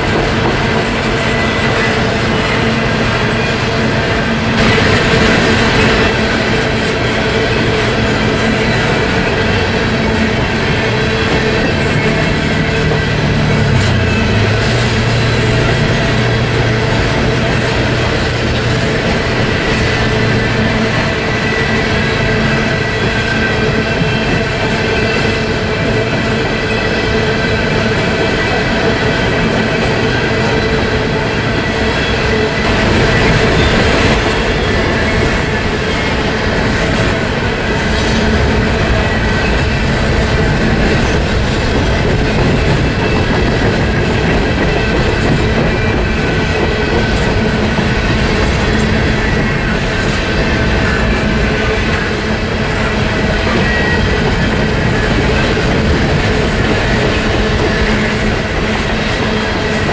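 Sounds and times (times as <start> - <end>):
clickety-clack of rail joints: 0.0 - 59.9
freight train wheels rumbling: 0.0 - 59.9
high wheel squeal: 1.1 - 59.9.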